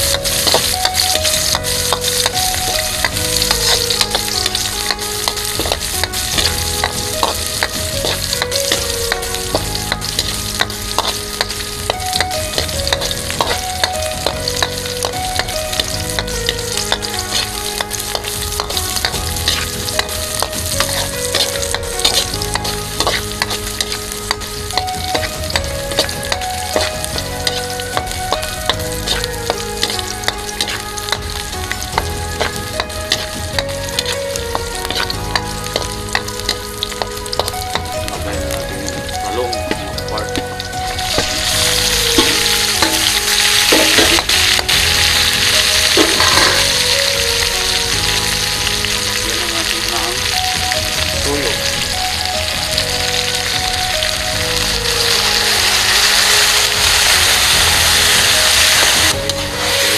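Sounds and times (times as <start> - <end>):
food sizzling in oil: 0.0 - 59.9
spatula scraping a pan: 0.1 - 37.8, 41.2 - 46.8.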